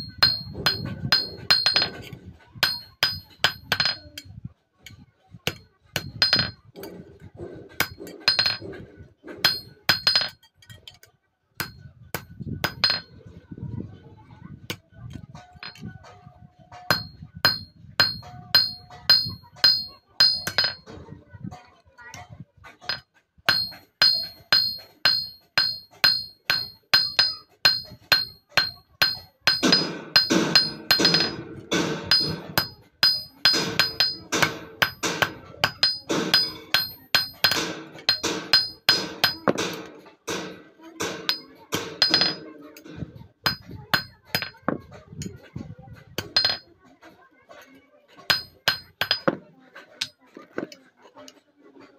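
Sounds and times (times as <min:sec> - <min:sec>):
hammer striking steel on anvil: 0:00.0 - 0:04.3, 0:04.9 - 0:11.0, 0:11.6 - 0:13.1, 0:15.4 - 0:21.0, 0:22.8 - 0:44.8, 0:46.2 - 0:46.7, 0:48.3 - 0:49.4.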